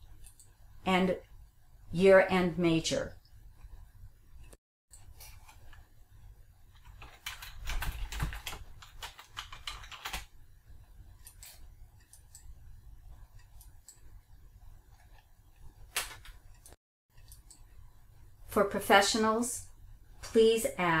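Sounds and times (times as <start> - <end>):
computer keyboard typing: 6.7 - 10.4.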